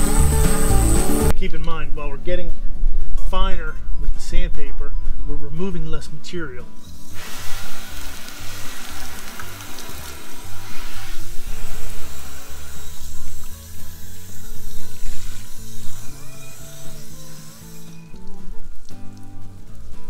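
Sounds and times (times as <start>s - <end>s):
hose spray nozzle hissing: 0.0s - 1.3s, 6.8s - 19.9s
background music with bass line: 0.0s - 1.4s, 9.1s - 20.0s.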